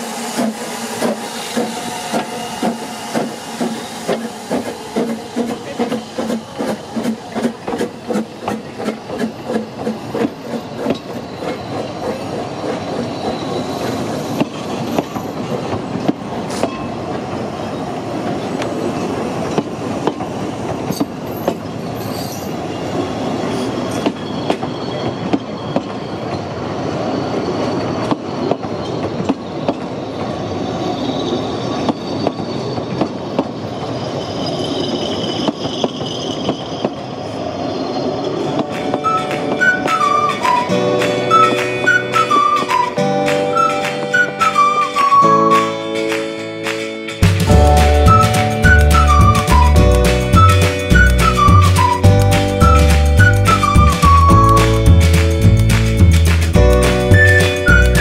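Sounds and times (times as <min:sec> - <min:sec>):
high wheel squeal: 0:00.0 - 0:15.7, 0:20.9 - 0:45.8, 0:47.5 - 0:55.5, 0:56.6 - 0:58.0
steam locomotive exhaust beats: 0:00.0 - 0:16.4, 0:38.6 - 0:58.0.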